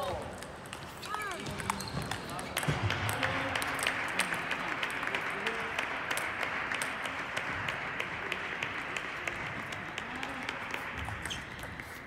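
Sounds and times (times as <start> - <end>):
table tennis balls clicking: 0.0 - 4.9, 8.6 - 12.0.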